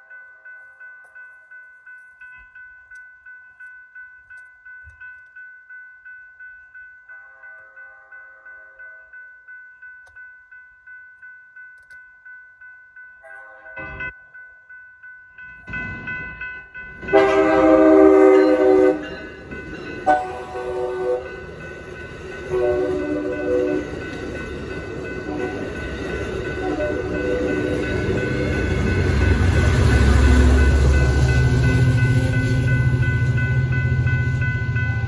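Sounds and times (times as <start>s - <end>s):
crossing bells ringing: 0.0s - 35.0s
train cars clattering past: 15.4s - 35.0s
diesel locomotive engine rumble: 15.7s - 35.0s
train horn blasts: 17.1s - 19.2s, 20.1s - 21.4s, 22.5s - 23.9s, 26.6s - 27.8s.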